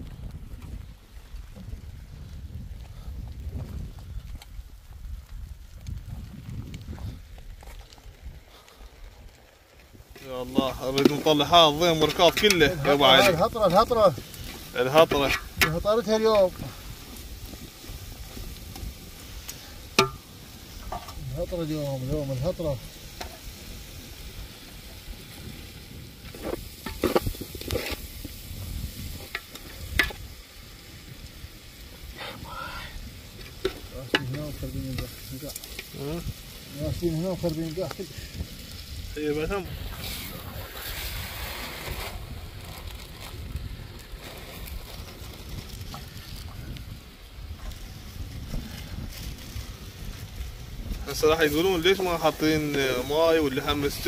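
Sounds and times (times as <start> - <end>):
wind buffeting microphone: 0.0 - 54.0
food sizzling in a pot: 9.9 - 54.0
utensil stirring: 10.2 - 16.6
knocks and scrapes against pot: 10.6 - 13.4, 14.4 - 15.8, 20.8 - 21.2.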